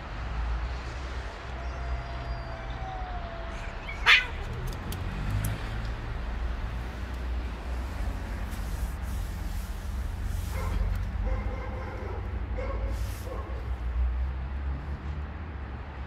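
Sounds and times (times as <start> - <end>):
cat yowling: 1.5 - 4.8
cat hissing: 3.5 - 4.6.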